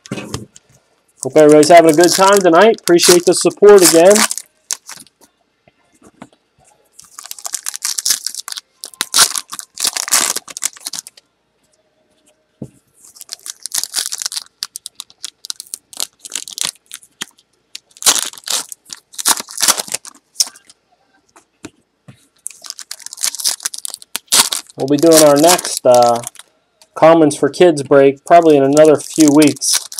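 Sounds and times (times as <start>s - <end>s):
foil packs tearing and crinkling: 1.2s - 5.1s, 7.0s - 11.1s, 13.1s - 20.6s, 22.4s - 26.4s, 28.7s - 29.9s.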